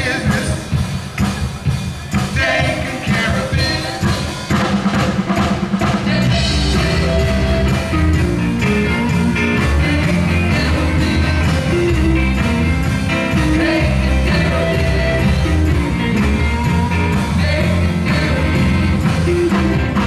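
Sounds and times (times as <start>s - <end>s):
man singing: 0.0s - 0.8s, 2.3s - 4.5s, 6.1s - 7.9s, 9.6s - 12.4s, 13.2s - 20.0s
live rock band playing: 0.0s - 20.0s.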